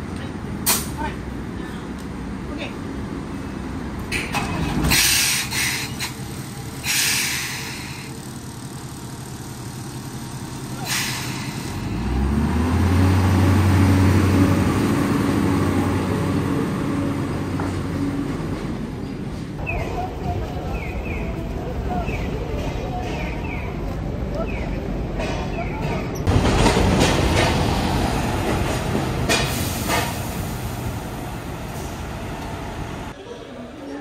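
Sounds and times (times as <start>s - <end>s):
air brake hissing: 4.9s - 6.2s, 6.8s - 8.2s, 10.8s - 11.9s.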